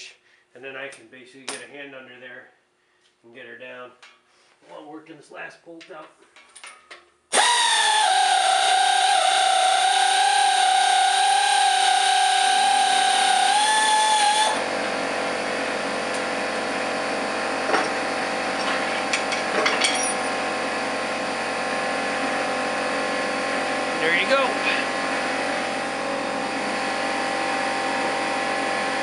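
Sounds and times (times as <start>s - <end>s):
power tool whining: 7.3s - 21.5s.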